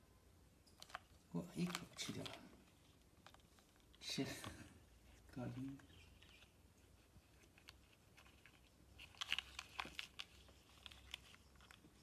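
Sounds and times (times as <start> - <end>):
turtle crunching and chewing: 5.9 - 12.0.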